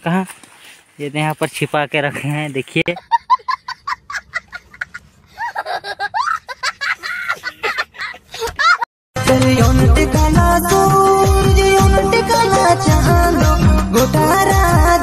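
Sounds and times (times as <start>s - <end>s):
child laughing: 3.0s - 8.9s.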